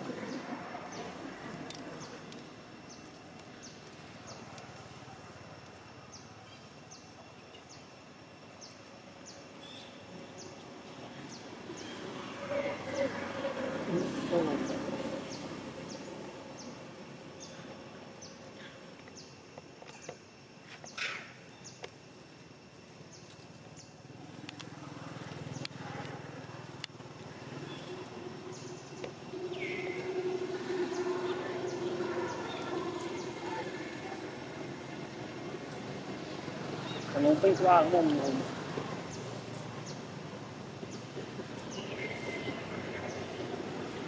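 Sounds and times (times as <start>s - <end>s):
vehicle engine hum: 9.1s - 18.7s, 23.4s - 44.0s.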